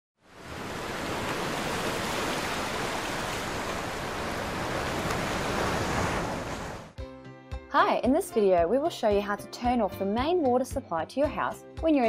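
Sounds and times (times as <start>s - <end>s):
rushing water: 0.2s - 7.0s.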